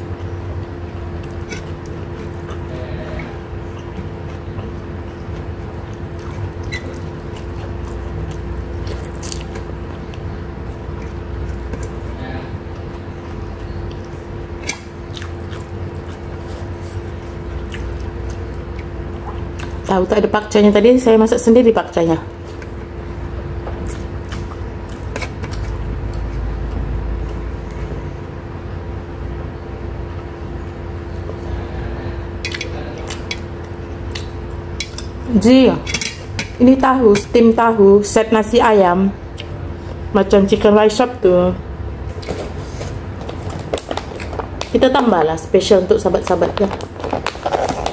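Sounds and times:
person chewing with wet clicks: 0:00.0 - 0:20.5, 0:22.2 - 0:28.0, 0:31.0 - 0:31.7, 0:32.4 - 0:37.4, 0:39.2 - 0:40.1, 0:43.2 - 0:45.4
steady low hum: 0:00.0 - 0:47.9.

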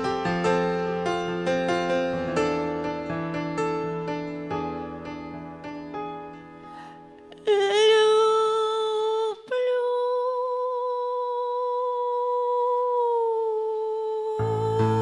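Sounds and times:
woman singing wordless notes: 0:07.3 - 0:15.0.

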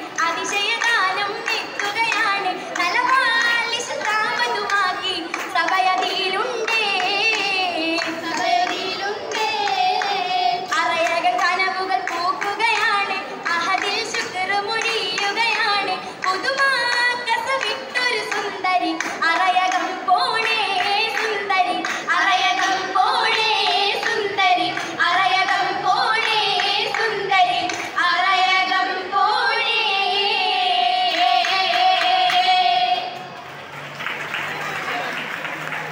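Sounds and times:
girls singing in unison: 0:00.0 - 0:33.3
hand clapping: 0:00.2 - 0:24.2, 0:26.2 - 0:27.9.

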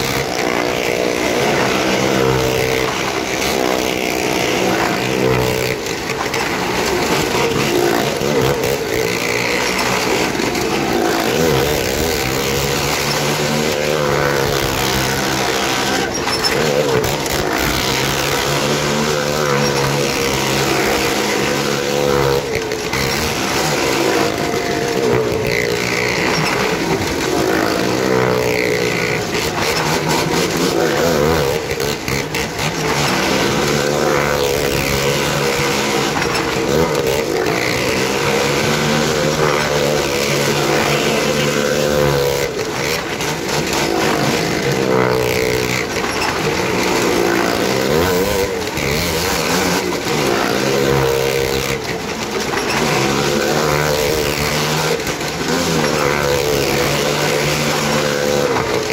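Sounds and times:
car and motorcycle engines revving: 0:00.0 - 0:58.9.

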